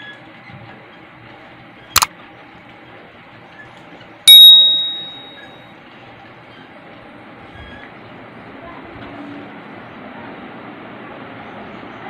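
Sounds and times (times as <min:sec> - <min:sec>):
bell ding: 0:04.3 - 0:05.6.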